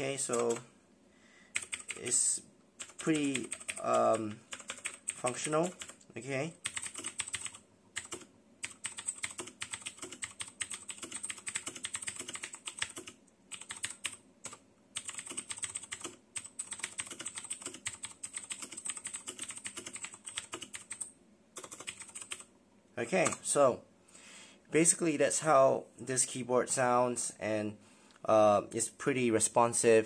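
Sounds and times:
fast typing on mechanical keyboard: 0:00.3 - 0:00.6, 0:01.6 - 0:02.0, 0:02.8 - 0:06.0, 0:06.6 - 0:22.5.

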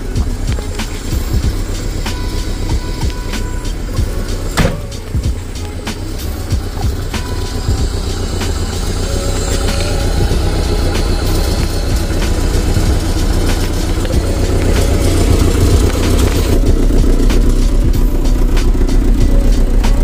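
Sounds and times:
car engine running: 0:00.0 - 0:20.0.

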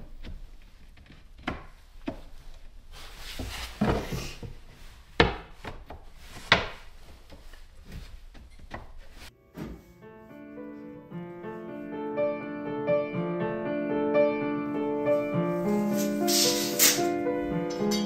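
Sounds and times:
hollow wooden knocks: 0:00.0 - 0:02.7, 0:05.2 - 0:09.0
boards sliding and rubbing: 0:00.1 - 0:09.3, 0:15.6 - 0:17.2.

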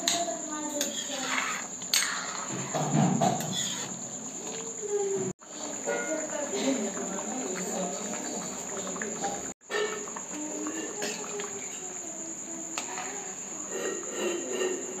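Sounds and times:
crickets chirring: 0:00.0 - 0:15.0
spoon stirring in steel pan: 0:00.8 - 0:04.8, 0:05.4 - 0:12.0.

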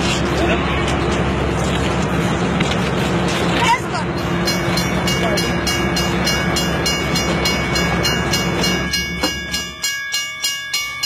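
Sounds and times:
train rumbling: 0:00.0 - 0:11.0
rhythmic train wheel clicking: 0:03.6 - 0:11.0.

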